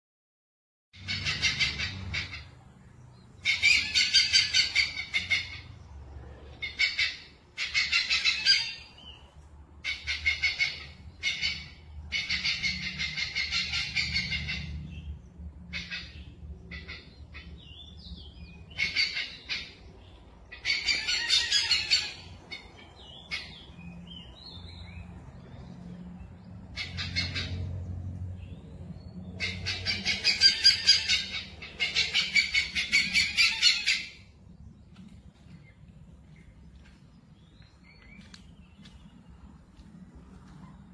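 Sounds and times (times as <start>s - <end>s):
bird chattering: 3.4s - 5.7s, 29.4s - 34.2s.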